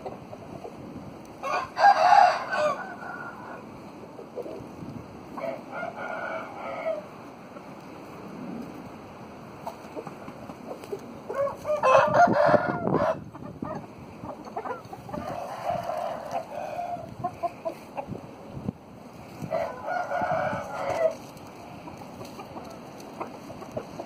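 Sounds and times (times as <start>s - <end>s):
chicken clucking: 0.0s - 0.9s, 2.6s - 4.7s, 9.6s - 18.2s, 19.4s - 24.0s
roosters crowing: 0.0s - 8.3s, 9.6s - 24.0s.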